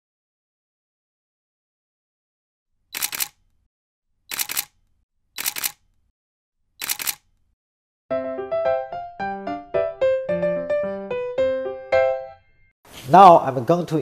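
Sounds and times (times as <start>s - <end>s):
camera shutter double click: 3.0s - 3.4s, 4.3s - 4.8s, 5.4s - 5.8s, 6.8s - 7.3s
piano music: 8.1s - 12.7s.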